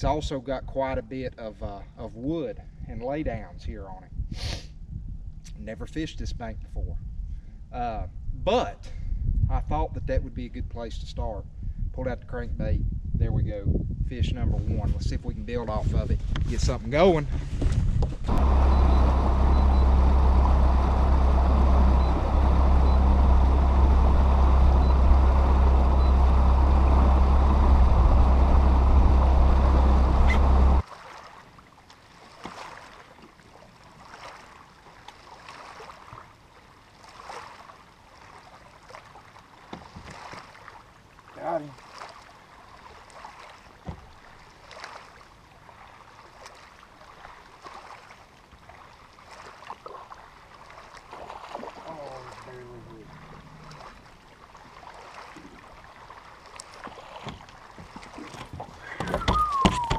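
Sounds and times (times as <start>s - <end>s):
wind noise: 2.6s - 30.8s
outboard motor drone: 18.2s - 59.9s
rushing water: 18.3s - 59.9s
small splashes: 18.3s - 59.9s.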